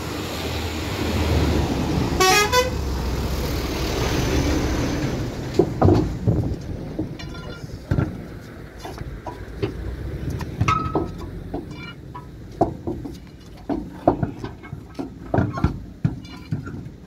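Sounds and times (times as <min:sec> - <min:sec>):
iron bar clinking on metal: 0:07.2 - 0:07.7, 0:10.7 - 0:12.4.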